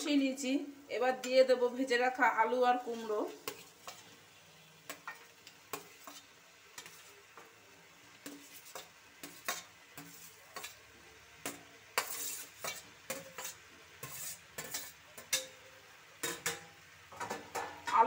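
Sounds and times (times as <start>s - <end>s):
faint sizzle: 0.0s - 18.0s
spoon scraping metal bowl: 2.7s - 4.2s, 4.9s - 7.2s, 8.2s - 10.8s, 11.4s - 15.5s.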